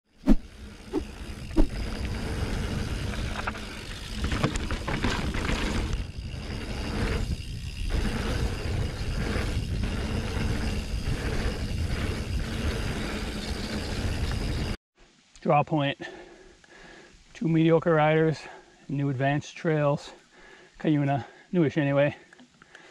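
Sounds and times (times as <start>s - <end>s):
bike rattling: 0.3s - 14.8s
tyres rolling over dirt: 0.5s - 14.8s
wind rushing over microphone: 5.8s - 14.8s.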